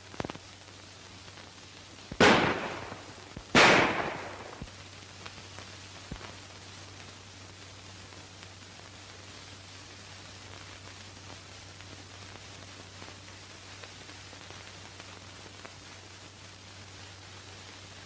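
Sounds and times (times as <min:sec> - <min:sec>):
echoing gunshots: 0:02.2 - 0:04.6.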